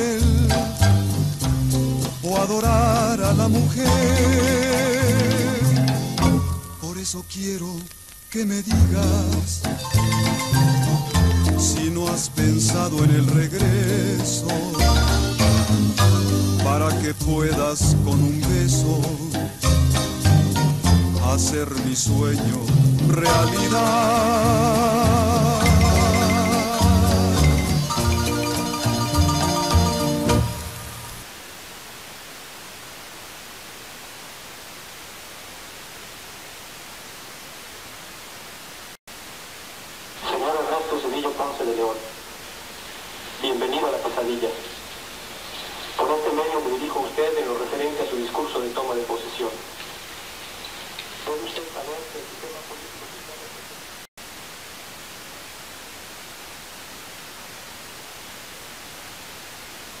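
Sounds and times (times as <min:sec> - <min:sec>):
static hiss: 0:00.0 - 1:00.0.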